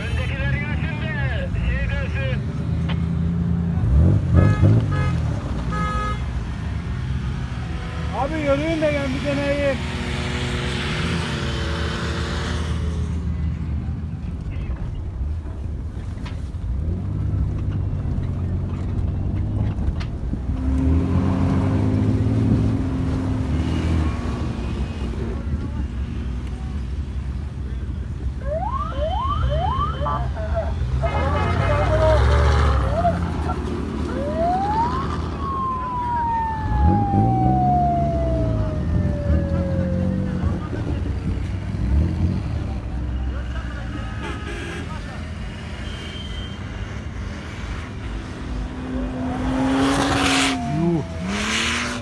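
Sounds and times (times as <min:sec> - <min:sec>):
off-road engines revving: 0:00.0 - 0:15.4, 0:16.6 - 0:28.7, 0:29.3 - 0:52.0
siren-like wail: 0:28.4 - 0:30.5, 0:34.0 - 0:40.6, 0:48.9 - 0:52.0.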